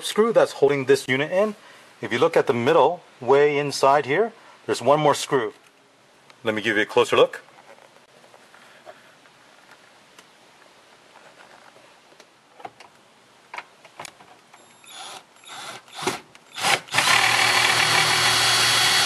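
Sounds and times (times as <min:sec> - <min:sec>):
cordless drill driver running: 0:14.8 - 0:19.0.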